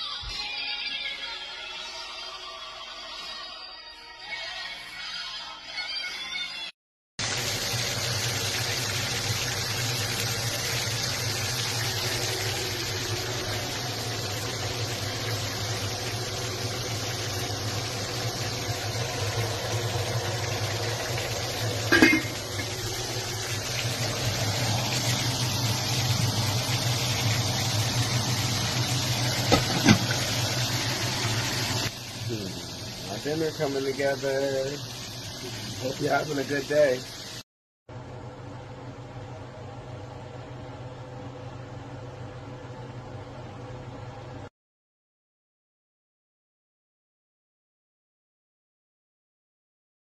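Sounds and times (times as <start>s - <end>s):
steady kitchen hiss: 7.2s - 37.4s
cookware clattering: 21.9s - 22.7s.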